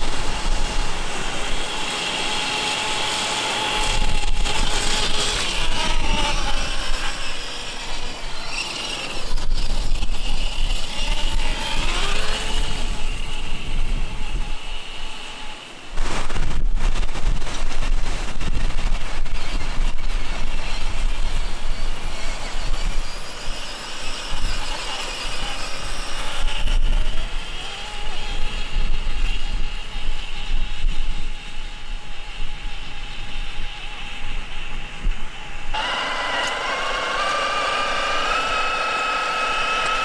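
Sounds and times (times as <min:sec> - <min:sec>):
electric motor whine: 0:00.0 - 0:40.0.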